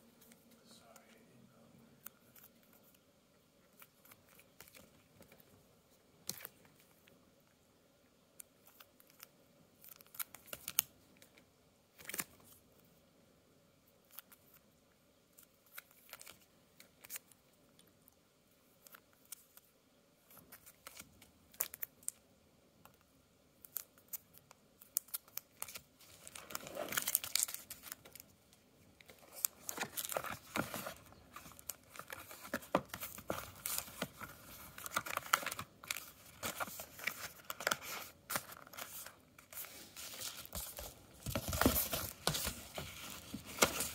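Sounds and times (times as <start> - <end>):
plastic sleeves crinkling: 23.7 - 43.9.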